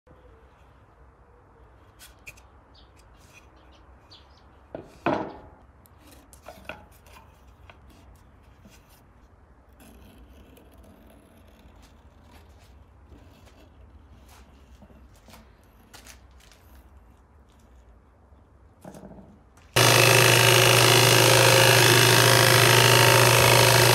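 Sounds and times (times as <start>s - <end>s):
pen scratching on wood: 9.7s - 14.8s.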